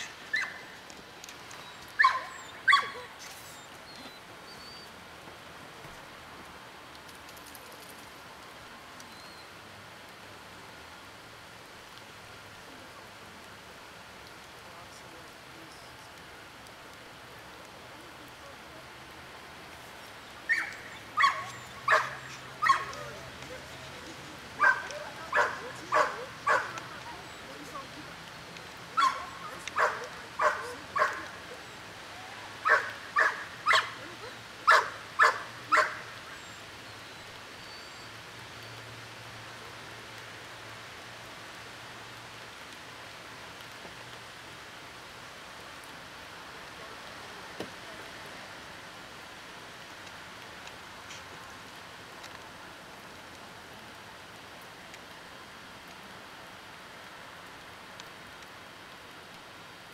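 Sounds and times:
steady background hiss: 0.0 - 59.9
dog barking: 2.0 - 3.1, 20.5 - 23.2, 24.6 - 26.8, 29.0 - 31.4, 32.6 - 34.0, 34.7 - 36.1.

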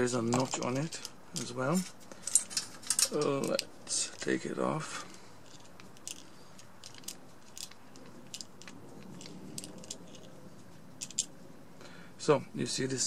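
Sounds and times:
small clicks and light scraping: 0.0 - 4.4, 5.1 - 11.3.

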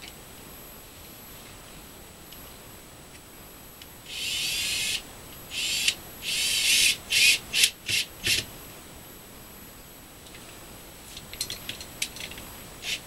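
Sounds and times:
cordless drill motor whining: 4.1 - 8.4.

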